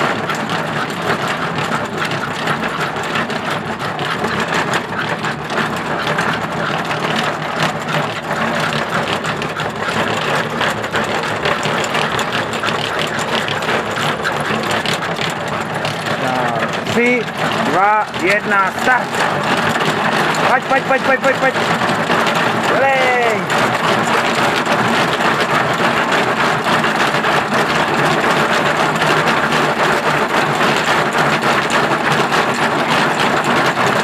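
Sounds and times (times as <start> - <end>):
treadmill mechanical clatter: 0.0 - 34.0.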